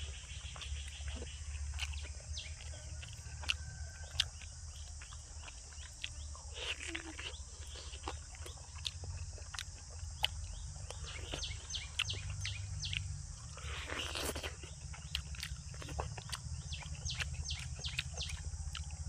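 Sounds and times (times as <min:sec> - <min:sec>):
chewing clicks: 0:00.3 - 0:19.0.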